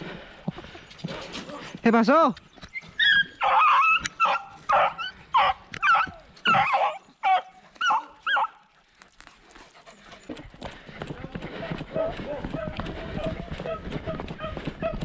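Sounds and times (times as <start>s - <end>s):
dog baying barks: 3.4s - 8.6s.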